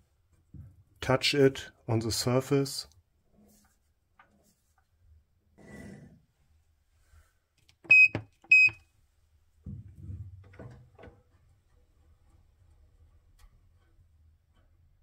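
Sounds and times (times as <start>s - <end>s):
short electronic beeps: 7.9s - 8.8s
faint handling knocks and clicks: 9.6s - 15.0s.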